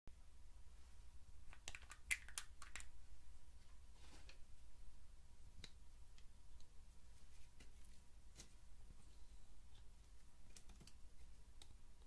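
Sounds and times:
soft rustle: 3.6 - 4.6, 6.6 - 11.4.

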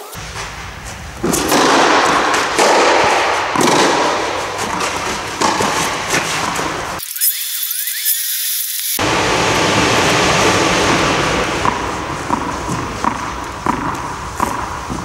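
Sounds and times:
racket hitting tennis ball: 0.0 - 7.0, 9.0 - 15.0
steady rushing noise: 9.0 - 14.4.

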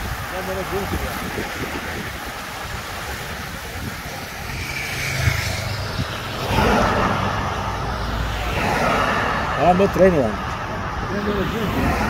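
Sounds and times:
cars driving past: 0.0 - 12.0.

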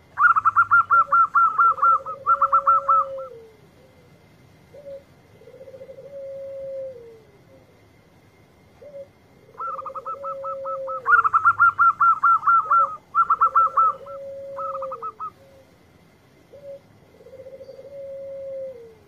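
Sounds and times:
dove cooing: 0.0 - 19.0
high-pitched bird chirping: 0.2 - 3.3, 9.6 - 15.4.

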